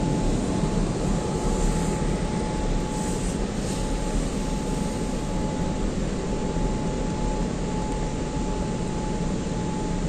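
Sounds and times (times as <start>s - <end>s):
car wash air dryer blowing: 0.0s - 5.3s
thin steady whine: 0.0s - 10.0s.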